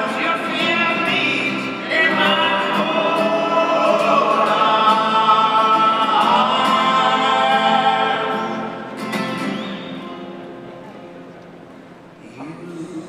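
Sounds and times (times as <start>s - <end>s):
voices singing in harmony: 0.0s - 9.8s.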